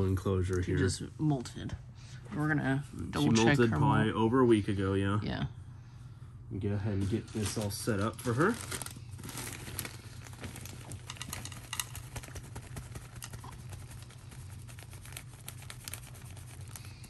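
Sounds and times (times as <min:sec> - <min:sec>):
soil pattering on plastic: 0:09.3 - 0:17.0.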